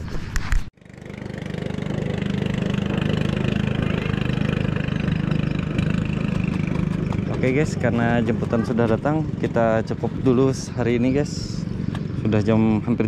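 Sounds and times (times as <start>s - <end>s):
small boat engine running: 0.8s - 13.0s.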